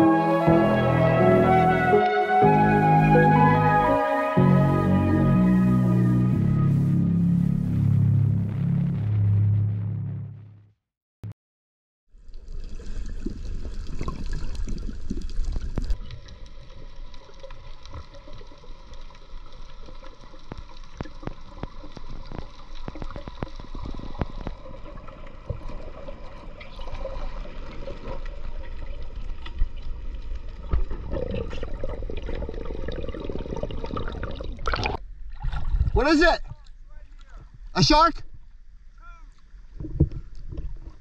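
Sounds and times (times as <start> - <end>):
background music: 0.0 - 9.1
low underwater rumble: 5.1 - 10.7
underwater water rush: 12.2 - 36.3.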